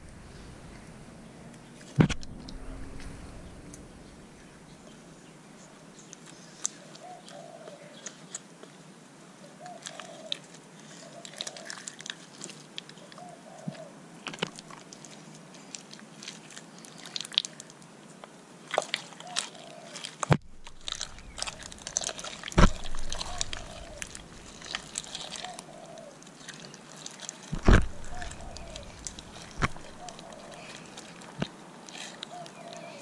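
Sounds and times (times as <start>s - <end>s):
hands squishing sticky slime: 20.5s - 31.5s.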